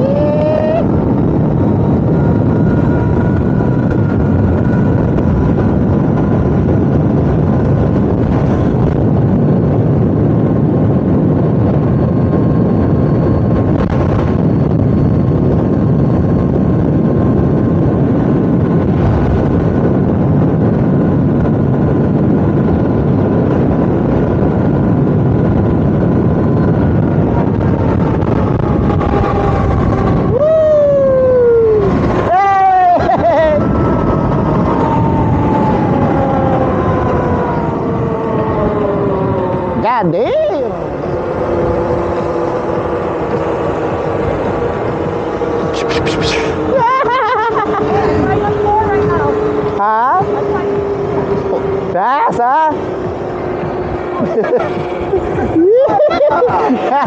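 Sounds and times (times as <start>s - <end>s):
wind rushing over microphone: 0.0s - 57.0s
electric motor whine: 31.2s - 57.0s.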